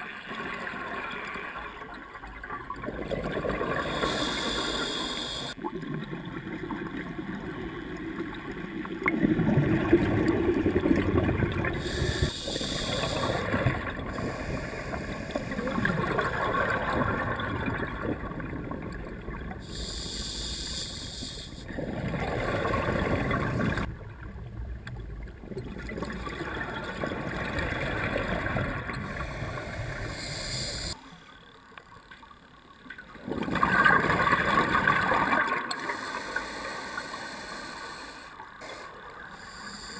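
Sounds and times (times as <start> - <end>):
regulator hissing inhalations: 3.8 - 5.6, 11.8 - 15.6, 19.6 - 21.7, 29.1 - 31.0, 35.8 - 39.9
gurgling exhaled bubbles: 5.3 - 19.9, 21.7 - 23.9, 33.2 - 35.9.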